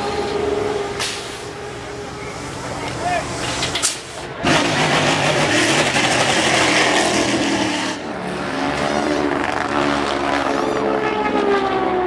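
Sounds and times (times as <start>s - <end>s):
race car engines: 0.0s - 12.0s
race car passing by: 4.4s - 12.0s.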